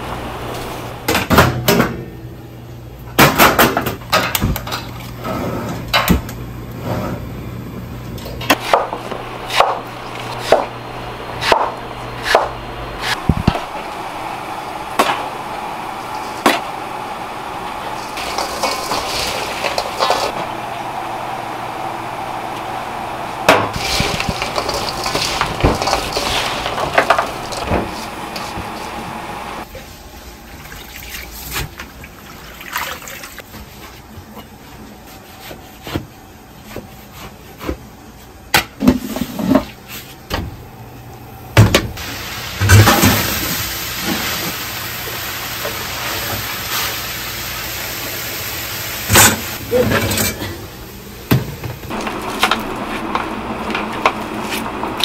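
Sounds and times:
watery rushing noise: 0:13.2 - 0:26.7
utensils knocking and clattering: 0:23.5 - 0:28.8.

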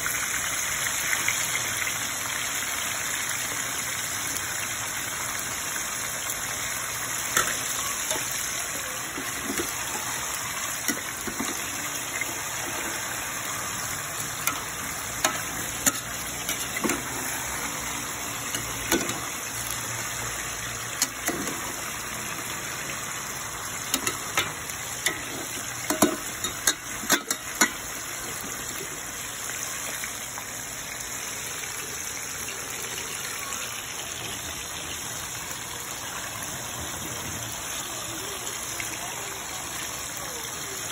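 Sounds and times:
chicken sizzling in oil: 0:00.0 - 0:40.9
oil popping: 0:07.2 - 0:29.1.

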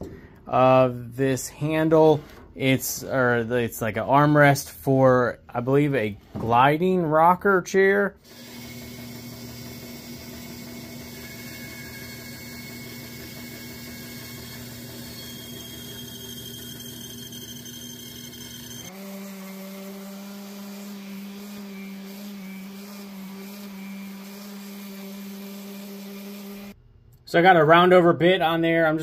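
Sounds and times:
bandsaw cutting wood: 0:08.2 - 0:26.8
orbital sander on wood: 0:18.8 - 0:26.8.

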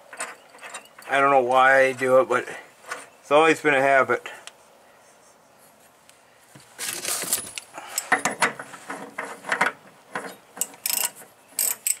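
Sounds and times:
metallic clinks and rattles: 0:00.0 - 0:01.1.

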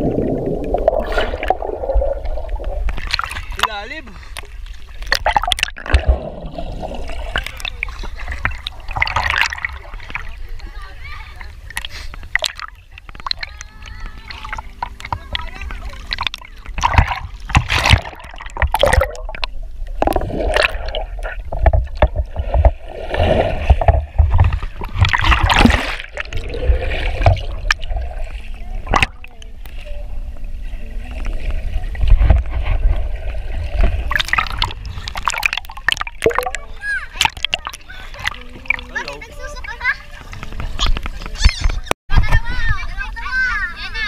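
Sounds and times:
muffled underwater gurgling: 0:00.0 - 0:03.6
river water sloshing and splashing: 0:00.0 - 0:41.5
low rumble of water buffeting: 0:00.0 - 0:44.0.

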